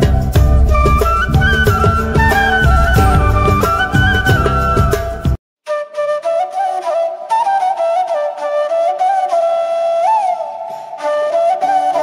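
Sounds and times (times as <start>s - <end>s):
light percussion: 0.0s - 5.4s
flute melody: 0.0s - 12.0s.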